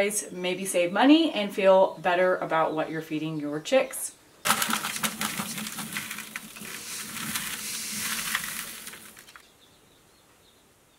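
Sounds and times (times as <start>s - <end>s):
grain pouring into plastic bucket: 4.5s - 9.4s.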